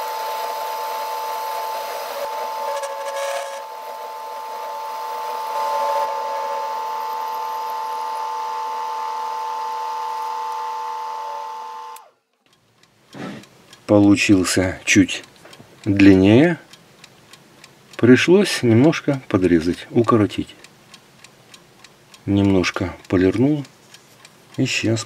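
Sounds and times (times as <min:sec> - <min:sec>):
lathe whining: 0:00.0 - 0:12.2.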